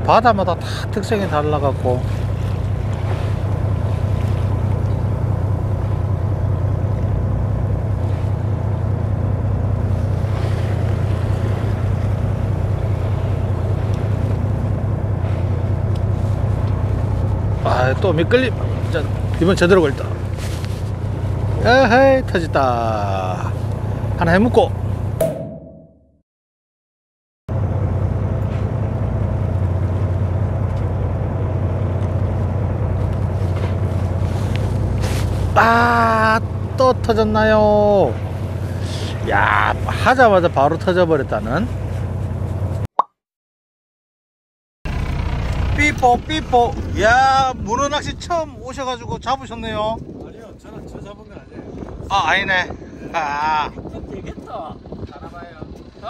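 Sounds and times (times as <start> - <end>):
boat engine humming: 0.0 - 25.4, 27.5 - 42.8, 44.9 - 56.0
wind: 0.0 - 25.9, 27.5 - 42.9, 44.9 - 56.0
water noise: 0.0 - 26.0, 27.6 - 42.6.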